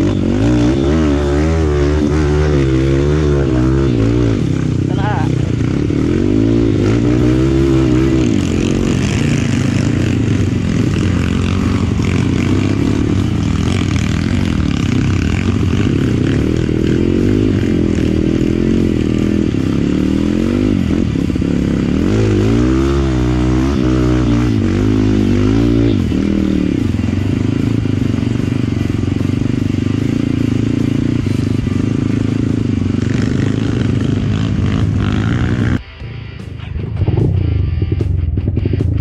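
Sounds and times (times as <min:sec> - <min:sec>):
dirt bike engine revving: 0:00.0 - 0:39.0.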